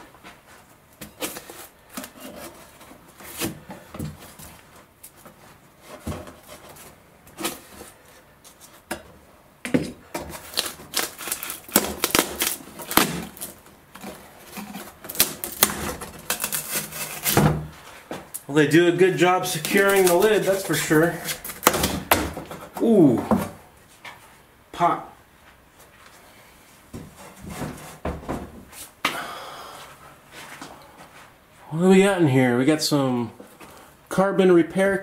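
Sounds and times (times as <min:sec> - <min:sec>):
wooden lid cracking and creaking: 0:09.7 - 0:17.7, 0:19.2 - 0:23.6.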